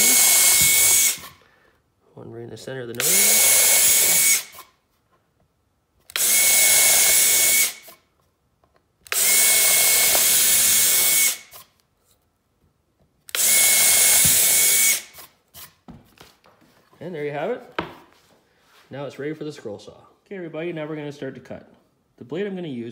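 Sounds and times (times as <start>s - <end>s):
cordless drill boring wood: 0.0s - 1.4s, 3.0s - 4.6s, 6.1s - 8.0s, 9.1s - 11.7s, 13.3s - 15.7s.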